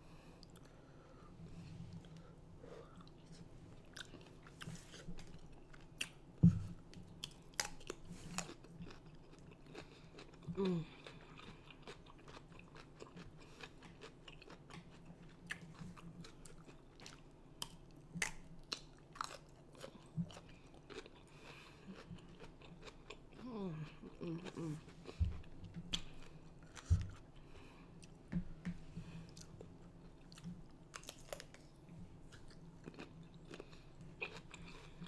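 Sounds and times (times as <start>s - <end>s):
crunchy chewing: 7.2s - 28.2s, 29.2s - 35.0s.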